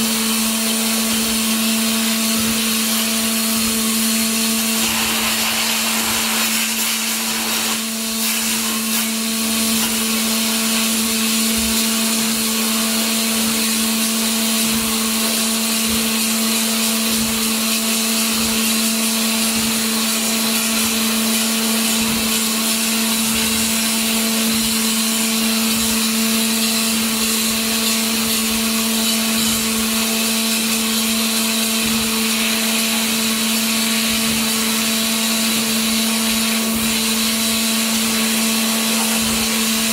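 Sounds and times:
water jet cutter hissing: 2.4s - 12.3s, 31.9s - 39.9s
steady hum: 3.6s - 8.9s.

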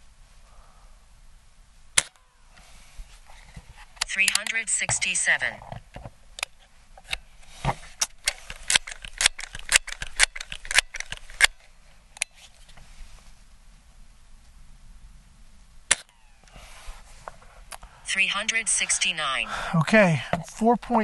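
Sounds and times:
faint hiss: 0.0s - 4.0s, 11.7s - 18.2s
metallic clicks of pellet pistol: 2.0s - 2.2s, 8.0s - 12.3s, 15.9s - 16.4s.

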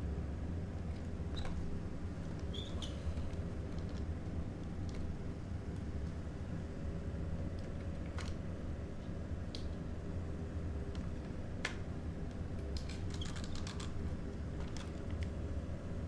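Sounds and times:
steady low hum: 0.0s - 16.0s
plastic clicks and rattles: 12.8s - 14.0s.

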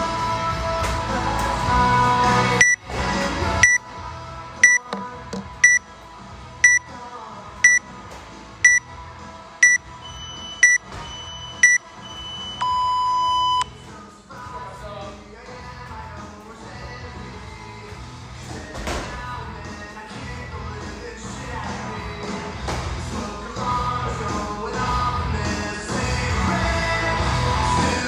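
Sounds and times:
background music: 0.0s - 28.0s
long lower beep: 4.6s - 4.9s, 6.6s - 6.9s, 9.6s - 13.7s
timer beeping: 4.6s - 5.8s, 6.6s - 6.9s, 9.6s - 13.7s.

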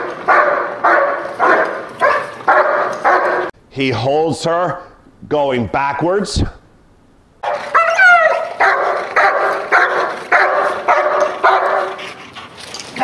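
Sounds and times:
dog barking: 0.0s - 3.5s, 7.4s - 12.0s.

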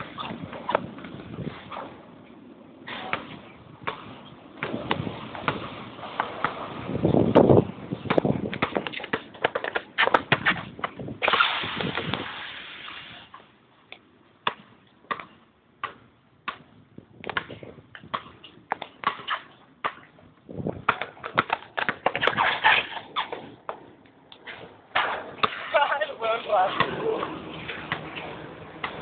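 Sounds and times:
basketball bouncing: 3.1s - 6.7s, 7.3s - 11.0s, 14.4s - 20.1s, 20.7s - 22.4s, 26.8s - 29.0s.

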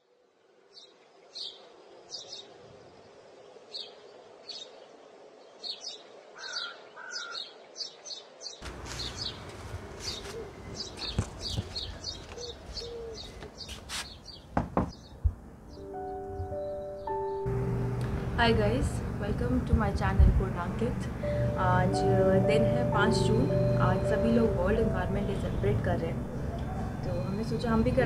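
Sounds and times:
small birds chirping: 0.7s - 17.5s.

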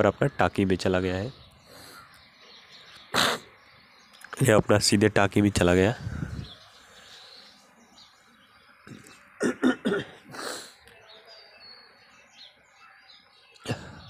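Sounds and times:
faint bird chirps: 0.0s - 14.0s
man clearing his throat: 8.9s - 10.6s, 13.6s - 14.0s
man coughing: 8.9s - 10.6s, 13.6s - 14.0s.

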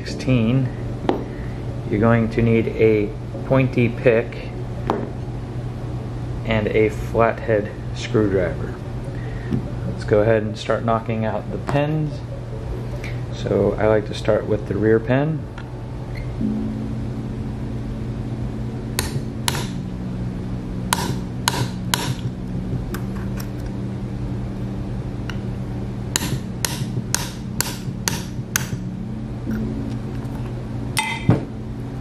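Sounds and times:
hammer tapping steel punch: 19.0s - 19.8s, 20.9s - 22.3s, 26.2s - 28.9s, 31.0s - 31.5s.

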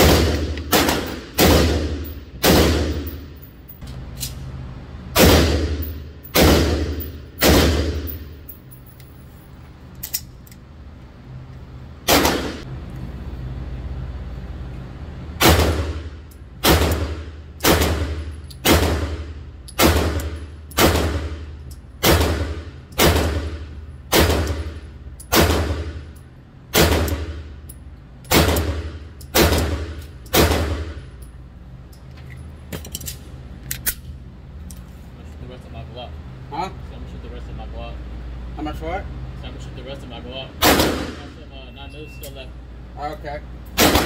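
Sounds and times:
pistol shots echoing indoors: 0.0s - 3.3s, 5.1s - 8.4s, 12.0s - 12.7s, 15.4s - 26.0s, 26.7s - 27.6s, 28.3s - 31.0s, 40.6s - 41.4s, 43.8s - 44.0s.

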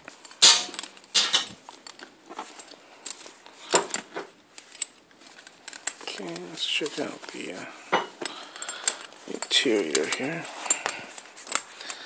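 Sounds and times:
handbag clicks and rustles: 0.0s - 12.0s
faint metallic clinks: 0.1s - 12.0s.

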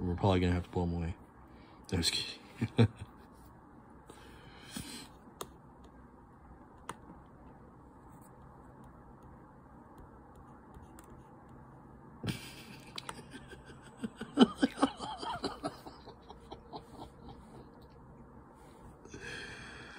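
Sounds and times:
person laughing: 12.2s - 17.8s.

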